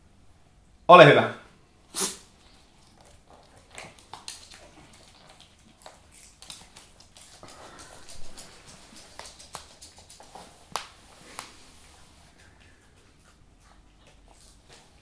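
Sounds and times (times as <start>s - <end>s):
dog crunching a hard treat: 2.3s - 11.6s.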